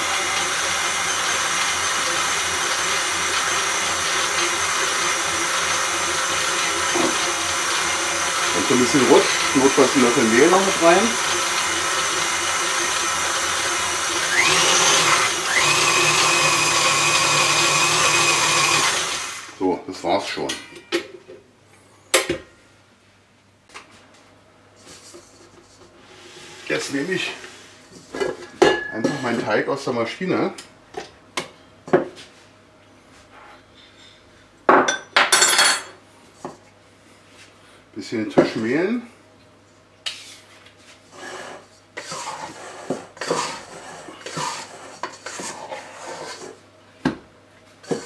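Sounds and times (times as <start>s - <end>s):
stand mixer motor whine: 0.0s - 19.6s.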